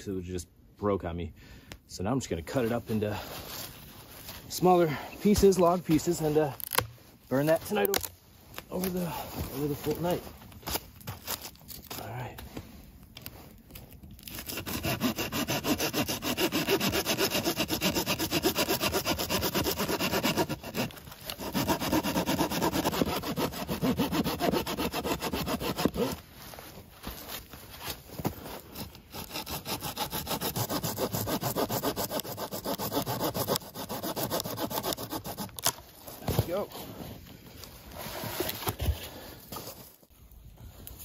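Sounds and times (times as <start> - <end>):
hand saw cutting log: 14.3 - 26.2, 28.7 - 35.8.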